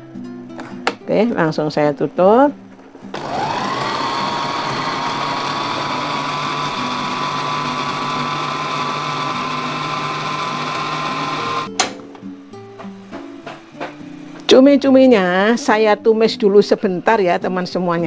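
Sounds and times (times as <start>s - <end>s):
electric blender motor whining: 3.1s - 11.7s.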